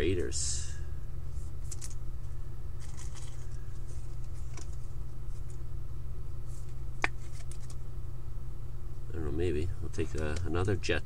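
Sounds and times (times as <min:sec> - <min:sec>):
steady low hum: 0:00.0 - 0:11.0
cards rustling: 0:01.3 - 0:02.0, 0:02.8 - 0:05.6, 0:06.4 - 0:07.8.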